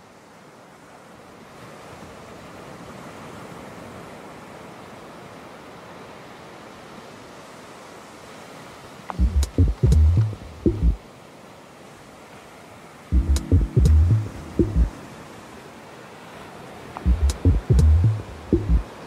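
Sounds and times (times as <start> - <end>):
open water rushing: 0.0 - 19.0
wind: 0.0 - 19.0
deep bass thumps of music: 9.2 - 11.0, 13.2 - 14.9, 17.1 - 18.8.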